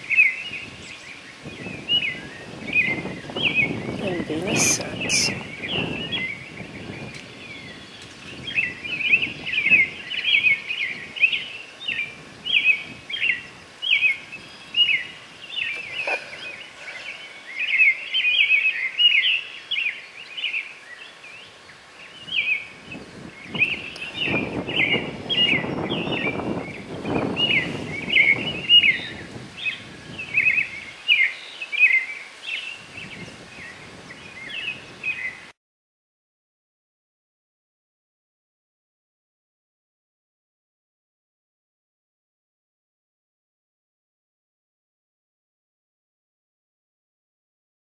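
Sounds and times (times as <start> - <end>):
birds chirping: 0.0 - 35.5.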